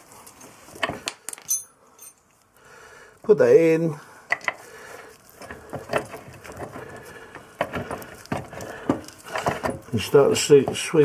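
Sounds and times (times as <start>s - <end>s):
light metallic clicks and scraping: 4.2s - 11.0s.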